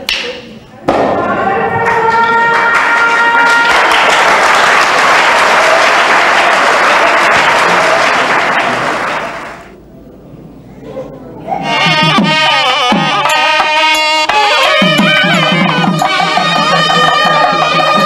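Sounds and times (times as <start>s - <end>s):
crowd applauding: 1.3s - 9.8s, 14.6s - 18.0s
held steady pitched note: 11.5s - 18.0s.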